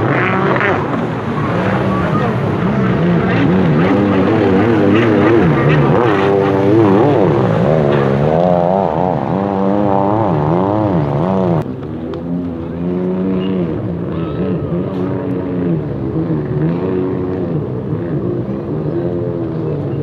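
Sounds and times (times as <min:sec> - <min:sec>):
jet ski engines revving: 0:00.0 - 0:20.0.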